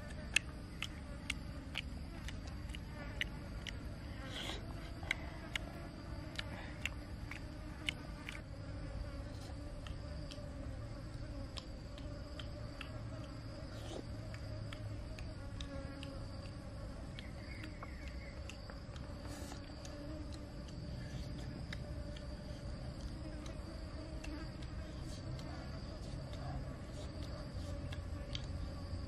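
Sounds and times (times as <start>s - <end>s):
insects chirring: 0.0s - 29.0s
person chewing: 0.2s - 5.7s.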